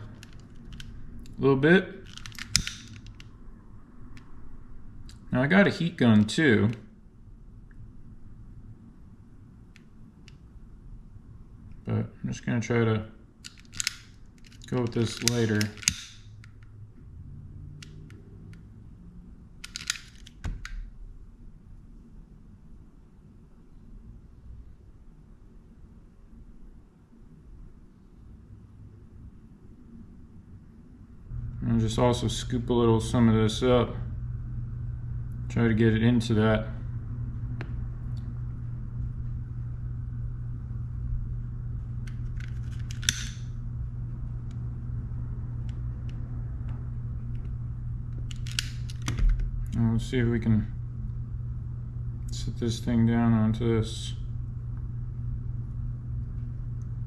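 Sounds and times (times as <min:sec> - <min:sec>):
small parts clicking: 0:00.0 - 0:01.4, 0:02.0 - 0:03.4, 0:13.4 - 0:16.7, 0:19.6 - 0:20.8, 0:42.0 - 0:43.5, 0:48.2 - 0:49.8
steady low hum: 0:00.0 - 0:57.0.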